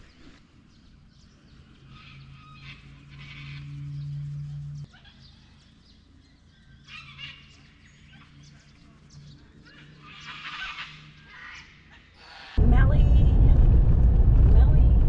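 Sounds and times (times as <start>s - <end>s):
cockatoos screeching: 1.9s - 4.0s, 9.6s - 12.6s
low steady hum: 12.6s - 15.0s.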